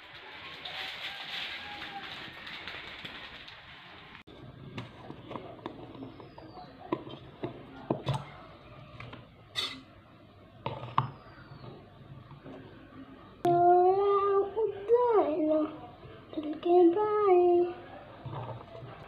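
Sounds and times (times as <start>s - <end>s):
child singing: 13.5s - 15.8s, 16.4s - 17.8s.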